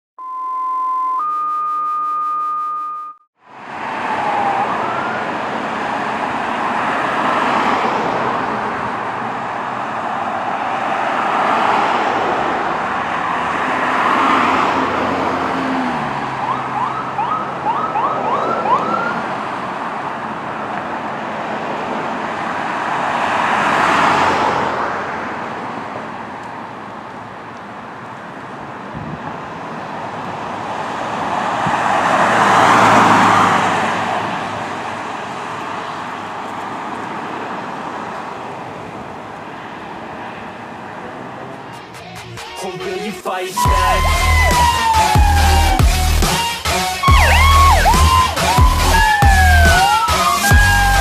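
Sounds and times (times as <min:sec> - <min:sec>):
siren yelps: 0:00.2 - 0:03.2, 0:03.9 - 0:05.6, 0:15.8 - 0:19.3, 0:43.6 - 0:51.0
steady electronic tone: 0:00.2 - 0:03.2, 0:43.6 - 0:44.7, 0:47.0 - 0:49.7
ambulance siren wailing: 0:00.6 - 0:07.7, 0:10.0 - 0:19.4, 0:32.4 - 0:34.1, 0:42.6 - 0:51.0.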